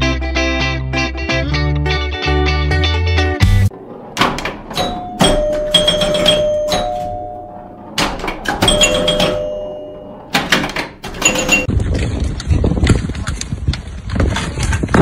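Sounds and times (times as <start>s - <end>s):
metal gates clanking: 4.1s - 11.7s.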